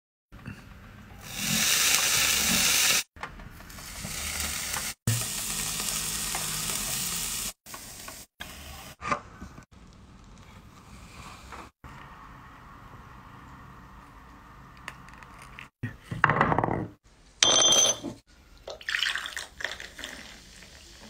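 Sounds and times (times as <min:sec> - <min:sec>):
food sizzling on a grill: 0:01.2 - 0:03.1, 0:03.8 - 0:08.9.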